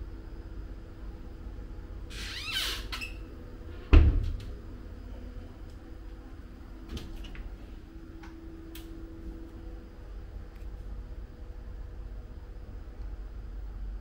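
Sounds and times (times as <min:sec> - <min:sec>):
wardrobe door thud: 0:03.9 - 0:04.4.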